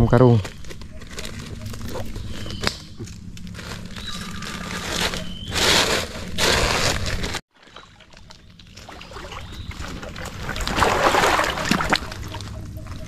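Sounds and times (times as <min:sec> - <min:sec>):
sack rustling and sloshing: 0:03.6 - 0:12.5.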